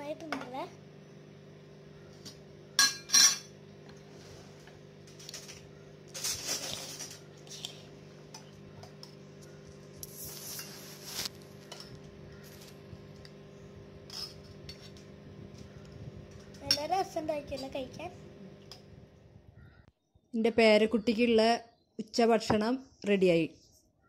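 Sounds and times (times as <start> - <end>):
low hum: 0.8 - 20.2.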